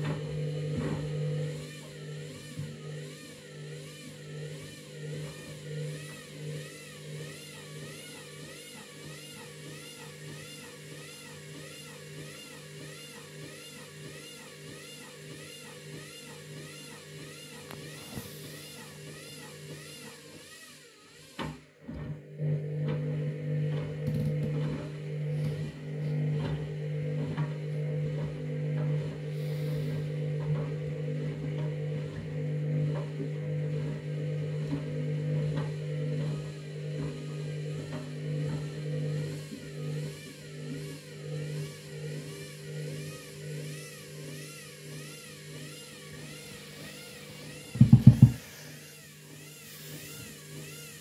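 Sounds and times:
washing machine motor hum: 0:00.0 - 0:20.5, 0:21.1 - 0:51.0
knocks from turning load: 0:47.8 - 0:48.5.

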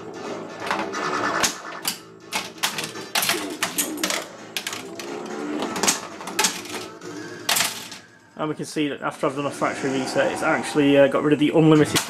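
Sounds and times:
pinball flippers and solenoids clacking: 0:00.6 - 0:06.9, 0:07.5 - 0:08.0, 0:11.7 - 0:12.0.

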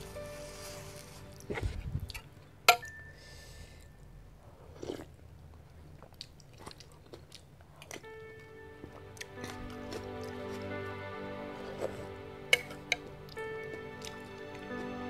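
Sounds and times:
person chewing food: 0:04.4 - 0:08.2, 0:11.5 - 0:14.4.

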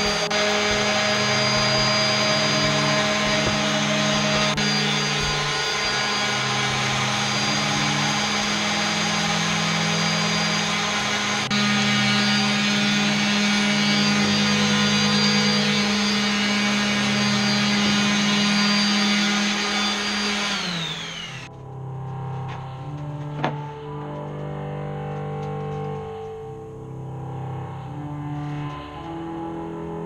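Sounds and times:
table saw motor whining: 0:00.0 - 0:21.6.

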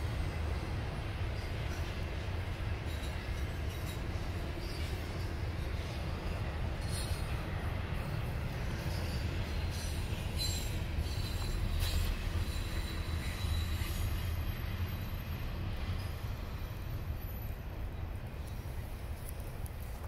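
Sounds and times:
freight train rumbling on rails: 0:00.0 - 0:20.0
faint wheel squeal: 0:06.8 - 0:07.6, 0:08.6 - 0:17.7.

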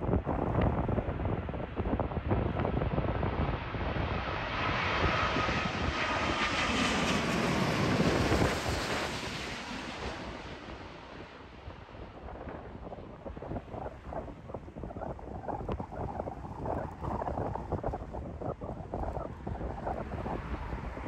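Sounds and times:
jet airliner engine noise: 0:00.0 - 0:21.0
wind buffeting microphone: 0:00.0 - 0:21.0
faint jet whine: 0:03.5 - 0:21.0.

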